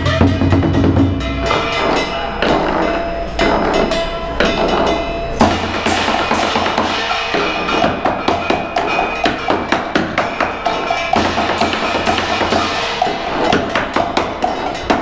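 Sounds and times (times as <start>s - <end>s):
hand cymbals clattering: 0.0s - 15.0s
heavy low drum stroke: 0.0s - 15.0s
barrel drum struck with sticks: 5.4s - 15.0s.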